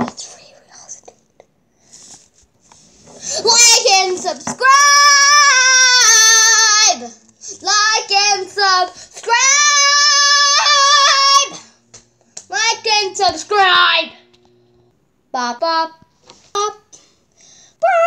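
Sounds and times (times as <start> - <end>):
girl singing in high voice: 3.4 - 11.7.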